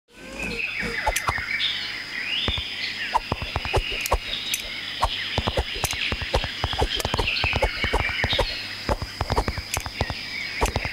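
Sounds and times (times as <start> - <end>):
bird chirps: 0.2 - 10.9
insect trilling: 3.1 - 10.9
sharp clicks and knocks: 3.2 - 4.7, 5.4 - 10.9.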